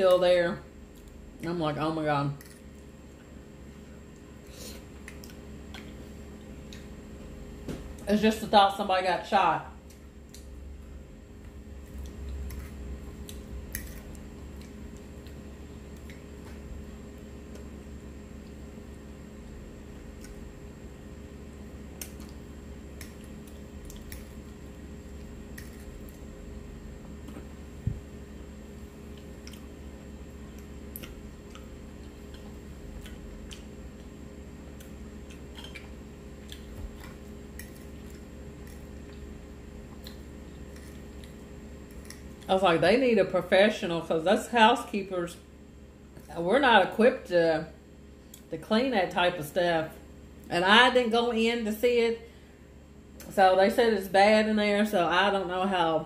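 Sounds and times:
low steady hum: 0.0 - 56.0
chewing: 2.4 - 6.0, 11.8 - 16.7, 22.0 - 26.2, 29.0 - 29.8, 30.4 - 42.5.

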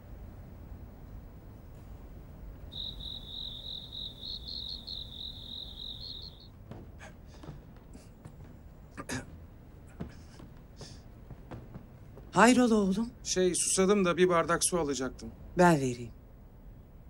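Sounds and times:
cricket trilling: 2.6 - 6.6
footsteps on stairs: 4.5 - 13.4.

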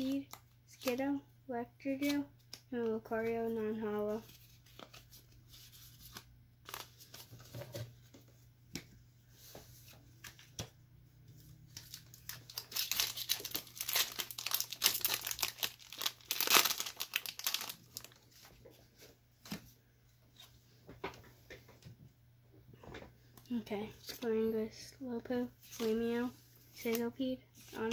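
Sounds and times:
foil wrapper crinkling: 11.7 - 18.5.

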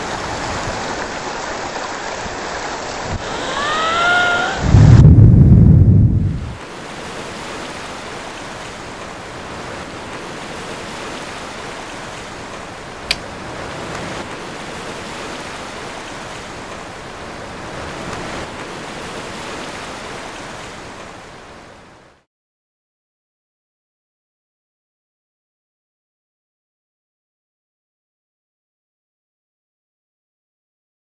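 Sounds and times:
ocean surf rushing: 0.0 - 22.3.

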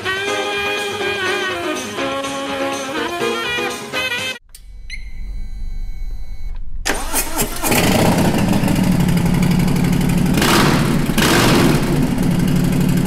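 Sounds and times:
motorcycle engine idling: 7.7 - 13.0.

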